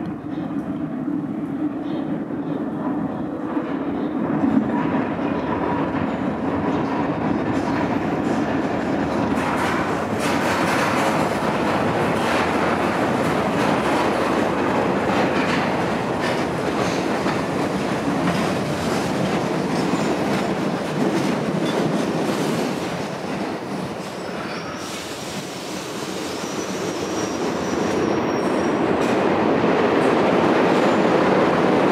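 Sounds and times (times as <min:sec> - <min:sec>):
subway train rumbling: 0:00.0 - 0:31.9
high wheel squeal: 0:26.2 - 0:28.8.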